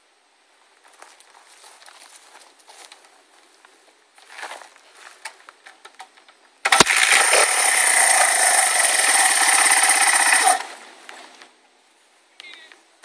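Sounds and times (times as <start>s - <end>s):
dirt bike engine running: 6.7s - 11.0s.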